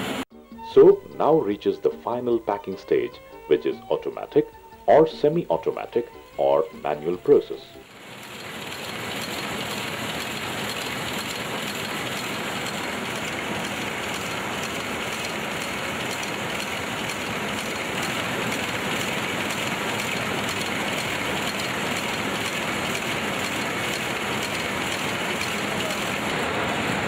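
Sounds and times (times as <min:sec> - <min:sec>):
packing machinery clattering: 0:10.2 - 0:27.0.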